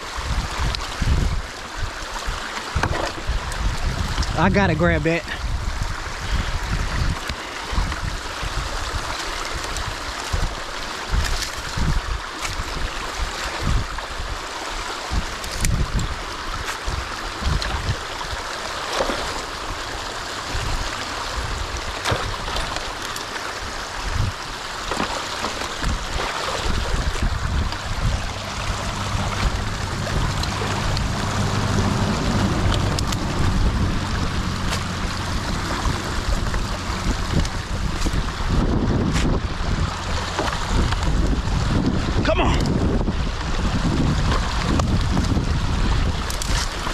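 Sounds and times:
water rushing and gurgling: 0.0 - 46.9
low rumbling thumps: 24.1 - 46.9.

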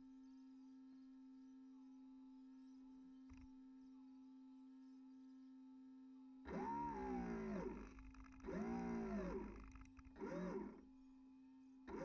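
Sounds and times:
electric motor whining: 8.4 - 9.6, 10.2 - 10.8.

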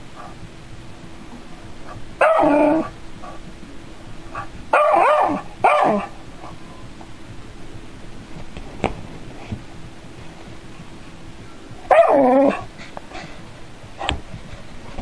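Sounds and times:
dog barking: 1.9 - 3.4, 4.4 - 6.6, 11.9 - 12.7.

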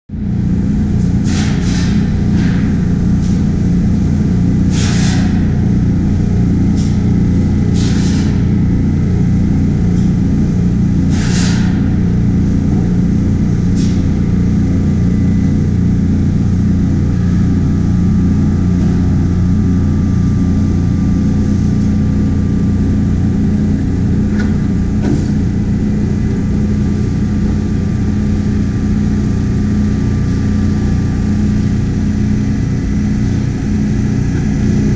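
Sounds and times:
machine motor humming: 11.9 - 34.9.

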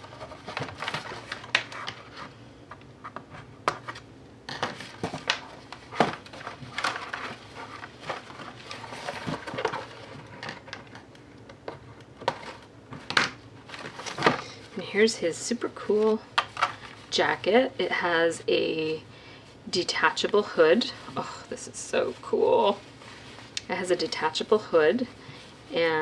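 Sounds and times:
plastic packaging crinkling: 4.6 - 11.1.

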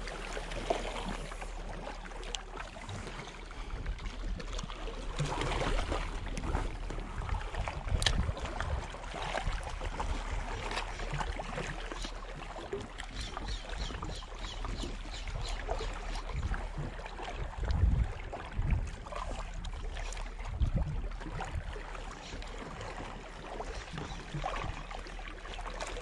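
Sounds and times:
water splashing against rocks: 0.0 - 26.0
wind buffeting microphone: 5.2 - 10.6, 16.3 - 19.1.

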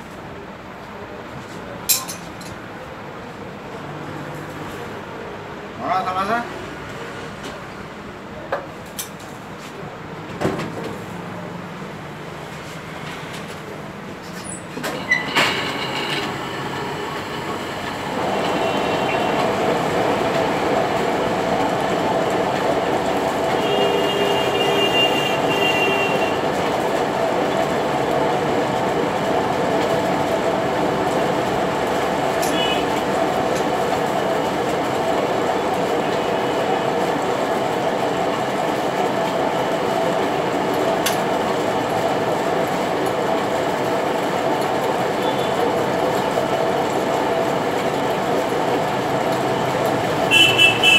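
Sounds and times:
metal lathe running: 15.0 - 23.8.

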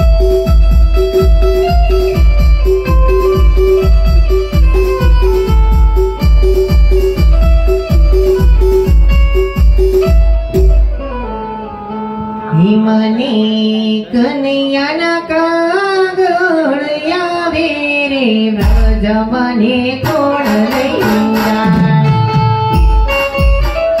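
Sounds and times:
drum beats: 0.0 - 12.4, 18.5 - 24.0
held instrumental notes: 0.0 - 13.9, 18.6 - 24.0
person singing folk song: 12.4 - 22.3.

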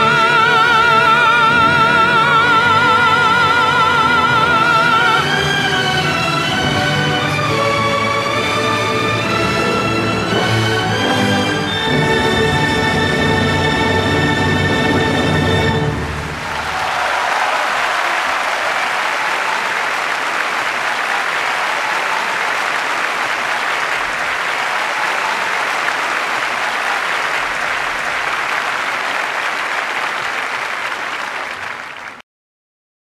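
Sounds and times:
crowd applause: 14.8 - 32.2.

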